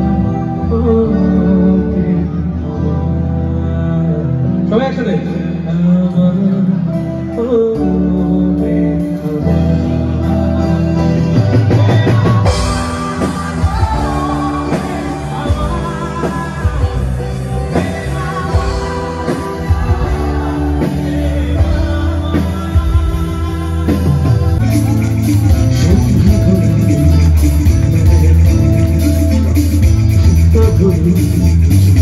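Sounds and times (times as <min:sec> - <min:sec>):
bass: 0:00.0 - 0:32.0
electric guitar: 0:00.0 - 0:32.0
drums and cymbals: 0:10.7 - 0:32.0.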